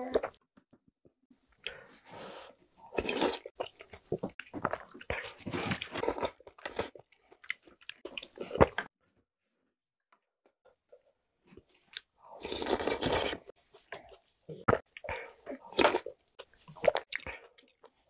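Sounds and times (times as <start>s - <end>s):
noodle slurping: 12.4s - 13.5s.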